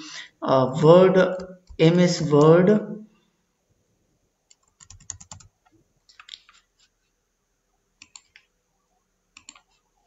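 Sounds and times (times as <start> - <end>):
computer keyboard keys clicking: 4.5 - 5.5, 8.0 - 8.5, 9.4 - 9.8.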